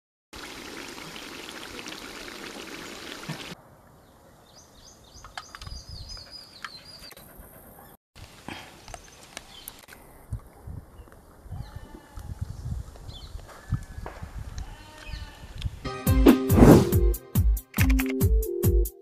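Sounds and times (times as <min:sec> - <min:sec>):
birds chirping: 0:02.8 - 0:08.0.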